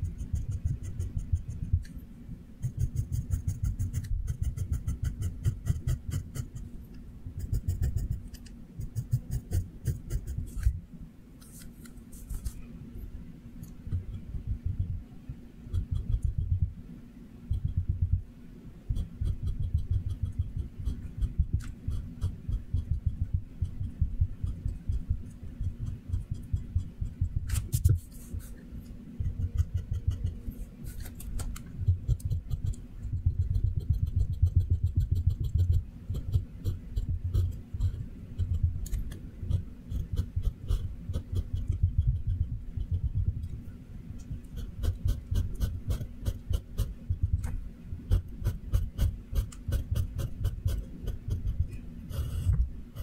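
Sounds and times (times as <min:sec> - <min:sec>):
pencil scratching on paper: 0:02.6 - 0:06.6, 0:07.4 - 0:10.8, 0:18.9 - 0:25.0, 0:29.2 - 0:31.3, 0:32.0 - 0:43.0, 0:44.4 - 0:47.0, 0:48.1 - 0:53.0.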